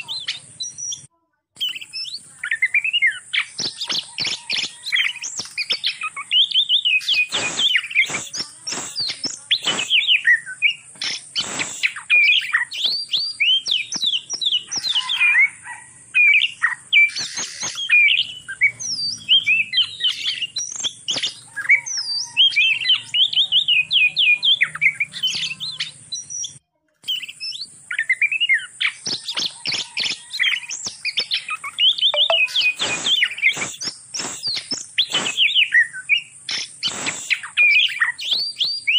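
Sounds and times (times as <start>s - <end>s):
birds chirping and trilling: 0.0s - 38.9s.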